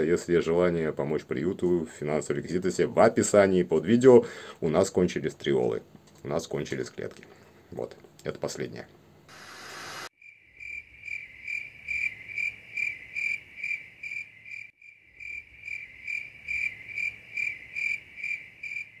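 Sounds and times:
cricket chirping: 10.2s - 19.0s.

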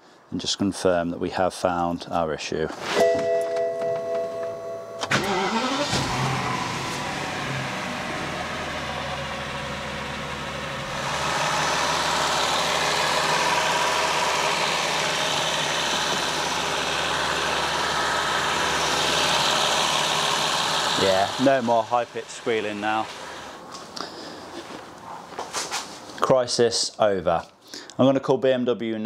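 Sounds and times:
car engine starting and idling: 3.2s - 23.6s.

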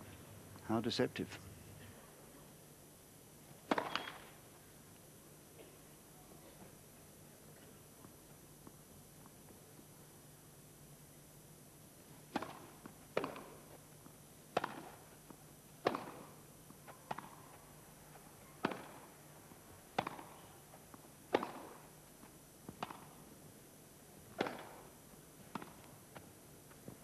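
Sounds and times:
racket hitting tennis ball: 3.7s - 4.1s, 12.3s - 13.6s, 14.5s - 15.1s, 15.8s - 16.4s, 17.0s - 17.4s, 18.6s - 19.1s, 19.9s - 20.5s, 21.3s - 21.9s, 22.7s - 23.2s, 24.3s - 25.9s
tennis ball bouncing: 3.7s - 4.1s, 12.3s - 13.6s, 14.5s - 17.4s, 18.6s - 19.1s, 19.9s - 21.9s, 22.7s - 23.2s, 24.3s - 26.3s.

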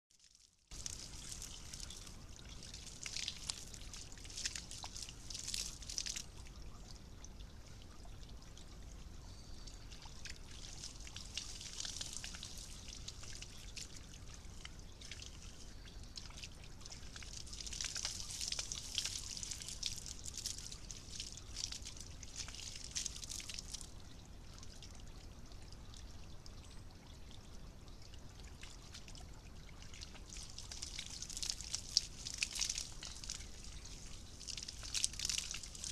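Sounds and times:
fountain water trickling: 0.1s - 35.9s
animal splashing in water: 0.7s - 6.2s.

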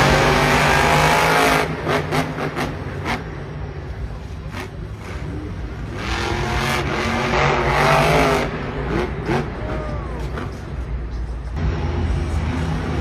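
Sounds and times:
truck engine revving: 0.0s - 3.7s, 4.4s - 11.0s.

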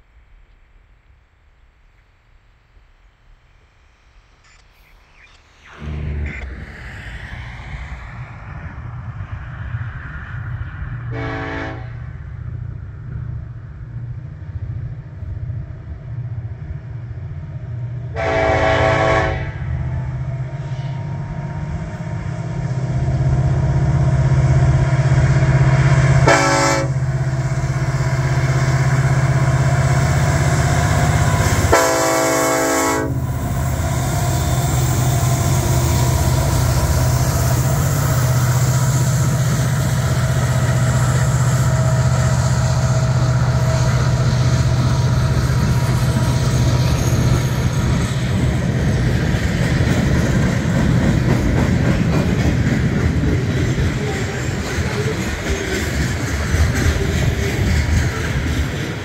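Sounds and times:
diesel locomotive engines droning: 3.6s - 59.0s
locomotive air horn blasts: 11.1s - 12.1s, 18.1s - 19.9s, 26.2s - 27.2s, 31.4s - 33.4s.

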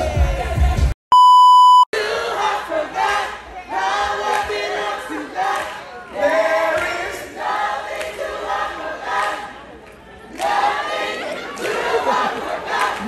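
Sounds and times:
crowd singing along: 2.0s - 13.0s.

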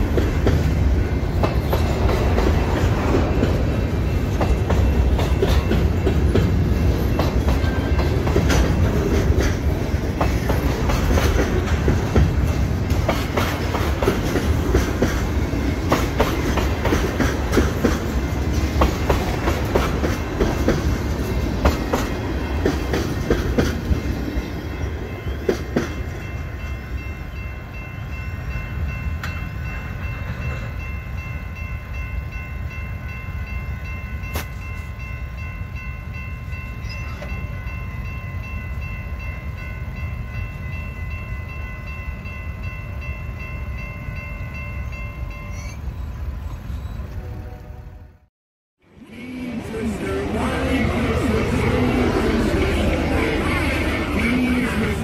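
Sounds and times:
train wheels clacking over rail joints: 0.0s - 24.0s
crossing warning bell ringing: 0.0s - 48.2s, 49.1s - 55.0s.

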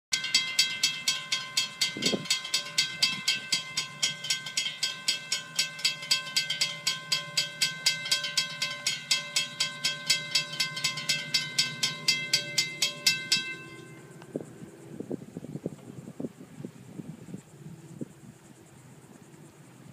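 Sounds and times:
crossing bells ringing: 0.1s - 14.8s
low hum: 0.2s - 19.9s.

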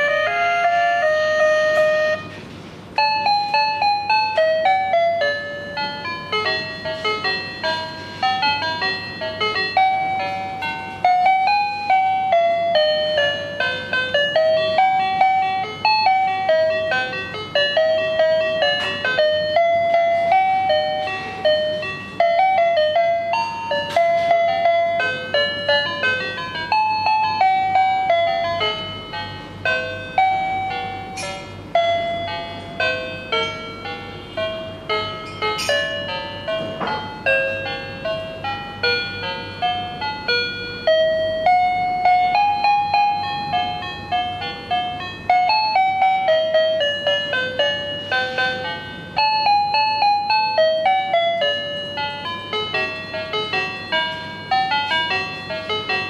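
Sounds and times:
toy phone electronic jingle: 0.0s - 2.3s, 3.0s - 34.0s, 37.2s - 56.0s.

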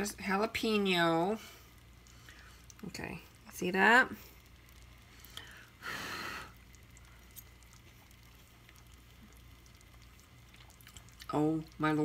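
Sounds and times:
low room hum: 0.0s - 12.0s
puff of breath: 5.4s - 6.6s.

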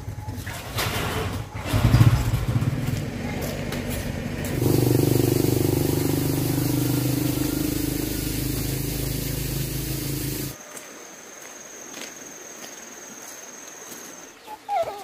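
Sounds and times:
small motorbike engine running: 1.6s - 10.6s.

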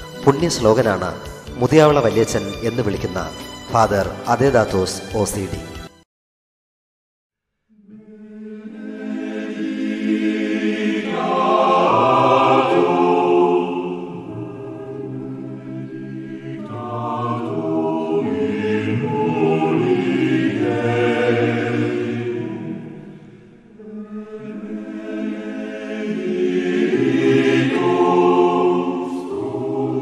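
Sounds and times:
choir singing held chords: 7.7s - 30.0s.

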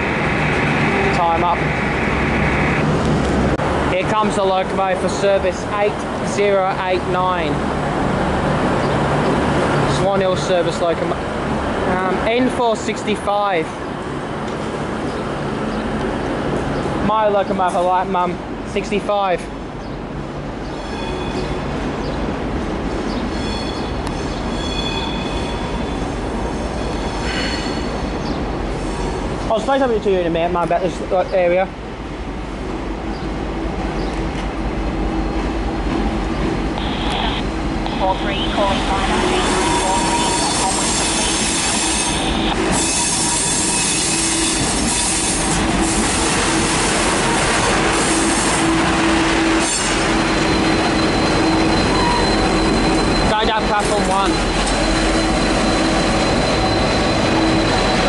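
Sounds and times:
locomotive rumble: 0.0s - 58.0s
high-pitched wheel squeal: 39.3s - 45.5s, 49.6s - 58.0s.

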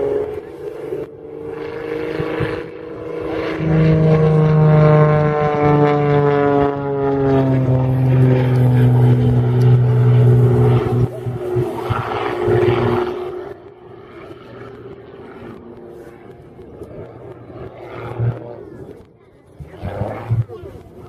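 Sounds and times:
propeller plane engine droning: 0.0s - 21.0s.

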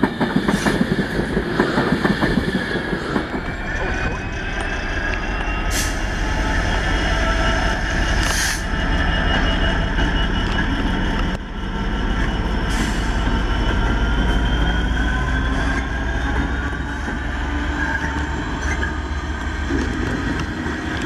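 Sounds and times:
diesel locomotive engine: 0.0s - 21.0s
wheels squealing on rails: 0.0s - 21.0s.

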